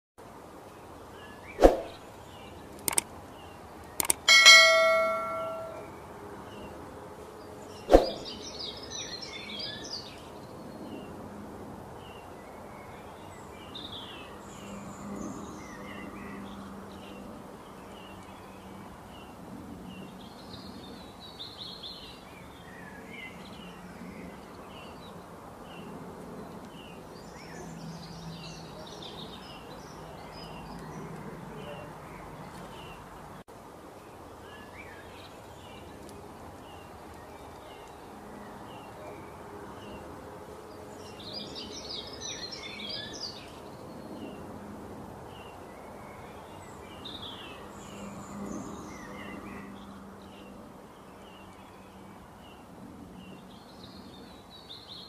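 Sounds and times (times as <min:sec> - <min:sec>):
faint high chirps: 0:04.0 - 0:05.9
ringing bell-like ding: 0:04.3 - 0:05.9.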